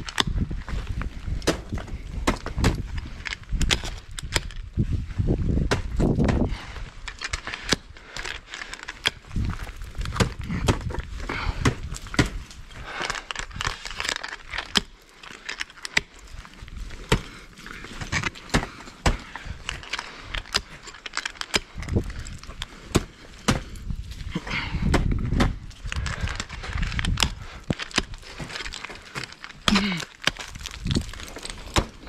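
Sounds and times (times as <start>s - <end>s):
carabiners clicking and jangling: 7.0s - 10.2s, 12.0s - 16.8s, 17.4s - 22.7s, 25.8s - 31.6s.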